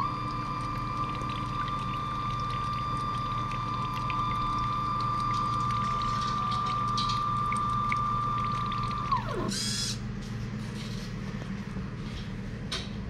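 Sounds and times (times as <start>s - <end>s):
liquid trickling into a bowl: 0.0s - 9.8s
pump motors whining: 0.0s - 12.9s
faint drips: 0.2s - 10.0s.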